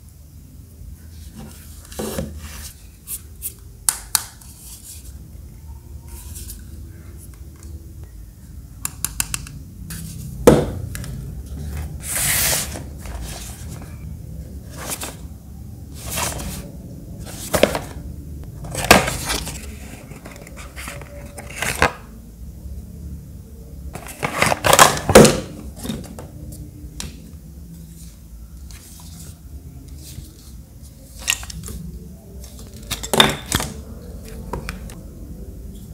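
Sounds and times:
box sliding rustle: 0:11.6 - 0:14.0, 0:16.0 - 0:18.0.

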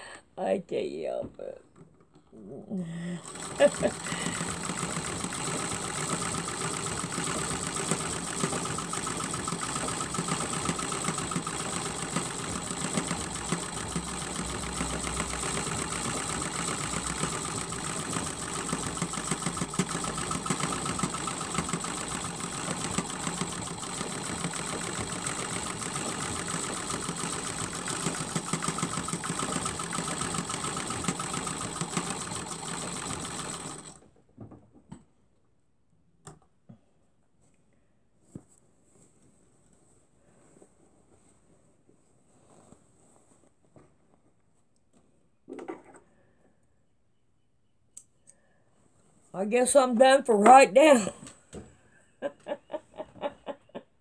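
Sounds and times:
sewing machine rattling: 0:03.0 - 0:34.1.

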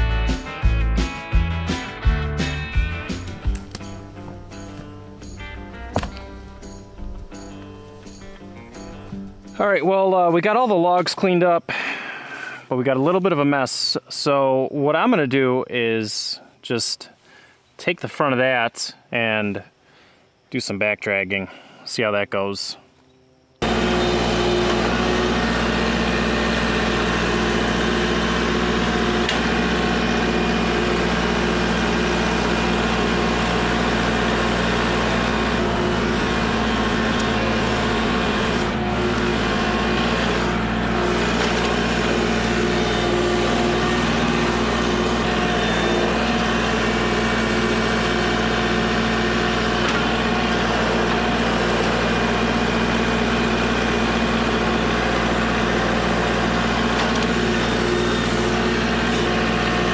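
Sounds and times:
tractor diesel engine running: 0:00.0 - 0:11.0, 0:23.6 - 0:59.9.

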